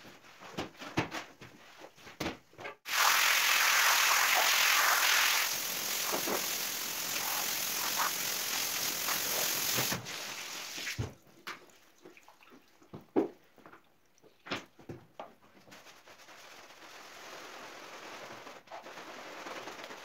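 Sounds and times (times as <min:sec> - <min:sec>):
water rinsing a rug: 0:02.9 - 0:11.2.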